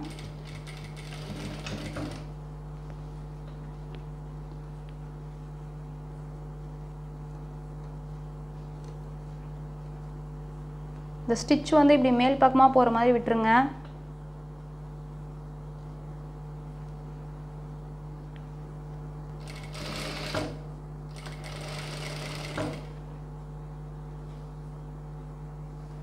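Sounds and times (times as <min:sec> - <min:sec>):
sewing machine stitching: 0:00.0 - 0:02.3, 0:19.4 - 0:22.9
steady low hum: 0:00.0 - 0:26.0.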